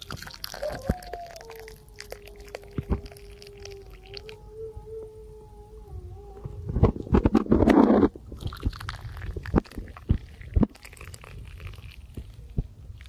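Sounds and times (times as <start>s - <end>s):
loud scraping rustle: 6.9s - 8.2s
tea pouring into a glass: 8.4s - 12.2s.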